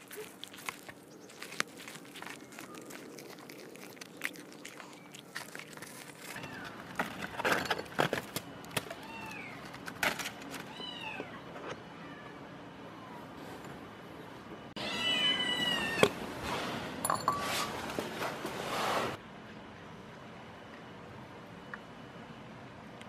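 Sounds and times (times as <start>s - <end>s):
cats chewing fish: 0.0s - 10.5s
aluminium foil crinkling: 0.0s - 10.7s
cat meowing: 14.8s - 16.0s.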